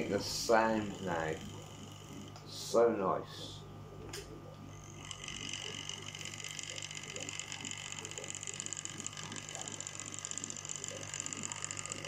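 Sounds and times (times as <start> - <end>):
model train motor whirring: 4.9 - 12.0.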